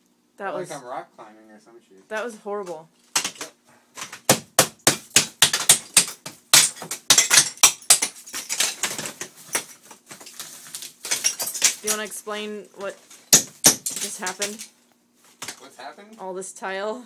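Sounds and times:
ceramic tile cracking and clattering: 5.1s - 12.1s.

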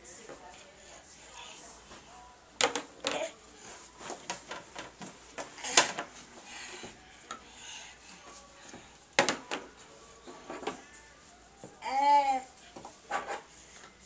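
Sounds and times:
plastic cups clicking and knocking: 2.6s - 3.2s, 4.2s - 6.1s.

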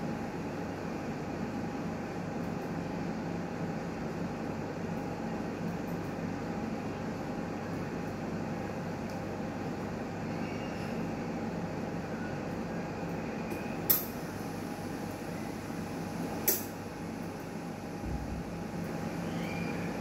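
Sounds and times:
autoclave mechanical hum: 0.0s - 20.0s.

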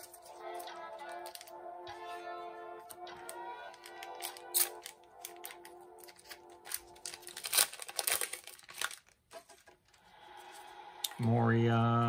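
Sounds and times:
foil wrapper tearing and crinkling: 0.0s - 1.6s, 2.9s - 9.7s
soft background music: 0.0s - 8.9s, 9.8s - 12.0s.

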